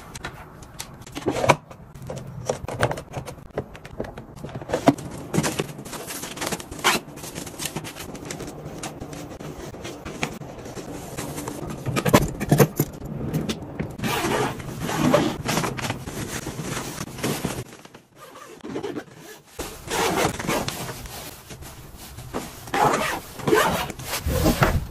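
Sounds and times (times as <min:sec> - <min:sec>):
zipper: 0:14.0 - 0:15.4, 0:18.2 - 0:21.0, 0:22.6 - 0:24.8.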